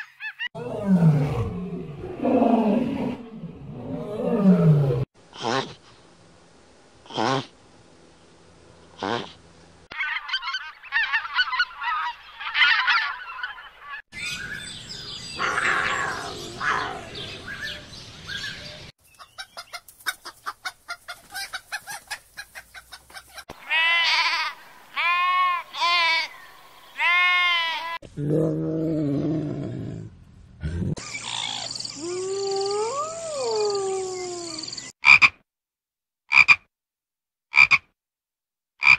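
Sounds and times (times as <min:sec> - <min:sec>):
loud drawn-out bird calls: 0:08.9 - 0:19.8, 0:22.8 - 0:28.0, 0:31.0 - 0:32.0
chickens clucking: 0:19.1 - 0:23.6.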